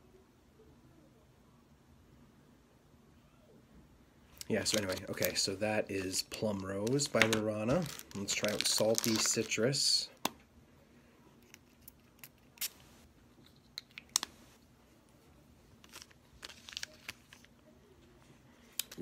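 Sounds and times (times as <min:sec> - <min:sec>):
plastic bag crinkling: 0:04.4 - 0:10.0, 0:15.8 - 0:17.6.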